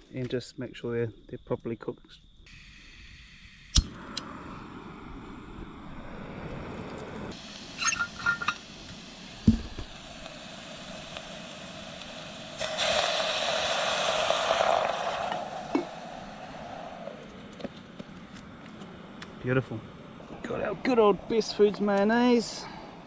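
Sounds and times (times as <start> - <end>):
hissing: 2.5 - 23.0
steady low rush: 2.7 - 7.7, 14.5 - 23.0
metal pot and utensils clinking: 7.8 - 8.6
knock: 9.5 - 9.7.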